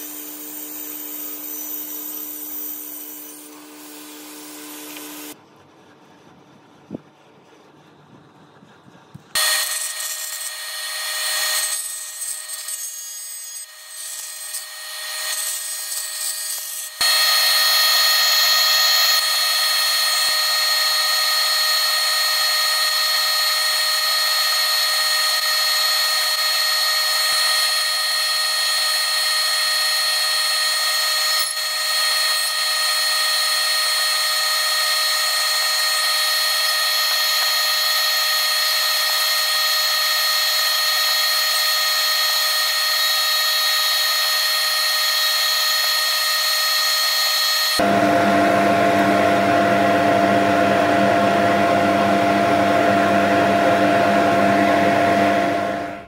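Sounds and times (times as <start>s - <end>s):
cutting tool hissing on resin: 0.0s - 5.4s, 9.4s - 47.9s
lathe whine: 9.4s - 56.0s.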